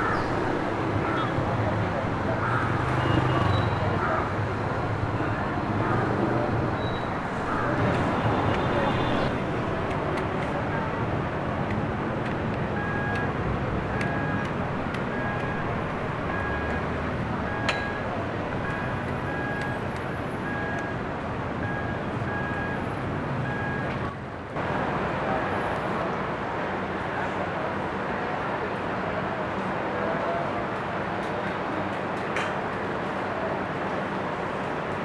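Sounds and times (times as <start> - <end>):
city street traffic: 0.0 - 35.0
short electronic beeps: 12.8 - 13.3, 14.0 - 14.4, 17.5 - 19.8, 20.4 - 21.0, 21.6 - 22.8, 23.5 - 24.0.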